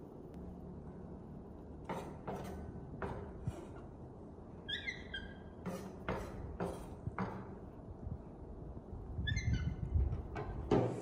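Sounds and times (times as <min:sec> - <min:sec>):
sharp knocks and clatters: 0:01.8 - 0:03.6, 0:05.6 - 0:07.7, 0:10.1 - 0:11.0
small animal squeaky call: 0:04.6 - 0:05.6, 0:09.2 - 0:10.0.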